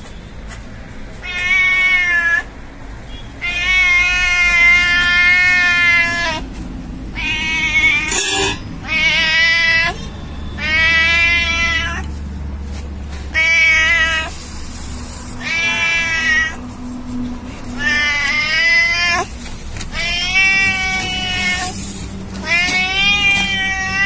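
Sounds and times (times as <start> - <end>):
cat meowing: 1.2 - 2.5, 3.4 - 6.4, 7.1 - 10.0, 10.6 - 12.1, 13.3 - 14.4, 15.3 - 16.7, 17.7 - 24.0.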